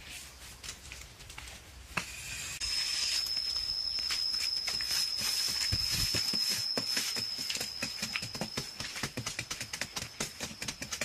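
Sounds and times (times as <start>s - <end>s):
hand tool scraping and knocking: 1.9s - 11.0s
high-pitched tone: 2.6s - 8.8s.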